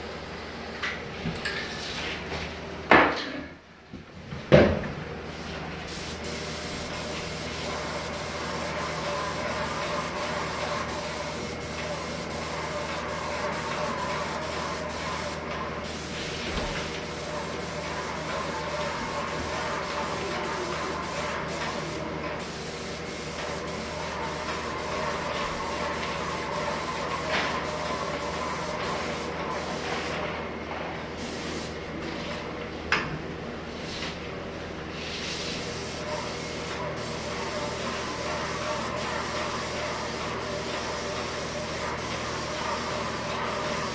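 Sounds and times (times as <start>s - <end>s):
mechanical hum: 0.0s - 43.9s
paint spray gun hissing: 5.9s - 30.2s, 31.2s - 31.8s, 35.2s - 43.9s.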